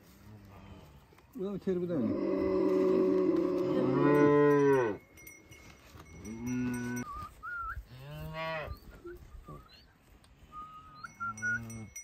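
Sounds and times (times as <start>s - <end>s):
cattle mooing: 2.0s - 5.0s.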